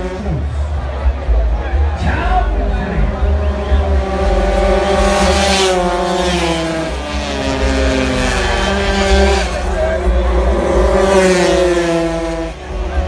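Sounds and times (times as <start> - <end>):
racing motorcycle engine revving: 0.0 - 13.0.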